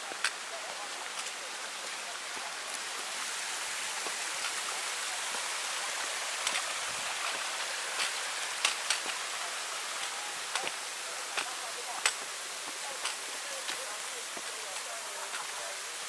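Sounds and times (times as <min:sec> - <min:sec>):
footsteps on trail steps: 0:00.0 - 0:16.0
rainforest ambience hiss: 0:00.0 - 0:16.0.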